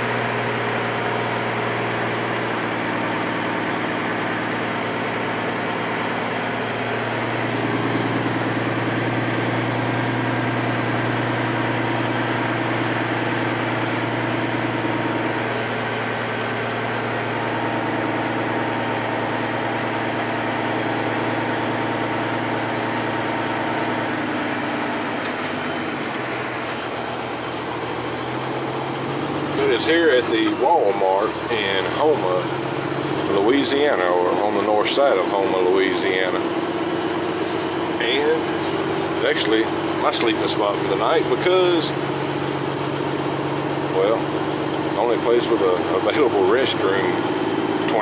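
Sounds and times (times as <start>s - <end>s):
large vehicle engine running: 0.0s - 48.0s.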